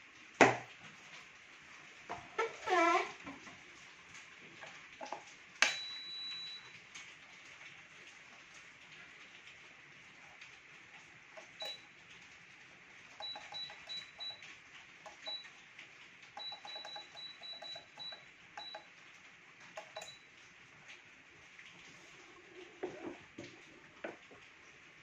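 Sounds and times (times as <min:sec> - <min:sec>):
short high control panel beeps: 0:05.6 - 0:06.7, 0:11.4 - 0:11.9, 0:13.2 - 0:14.4, 0:16.4 - 0:18.9, 0:19.9 - 0:20.2.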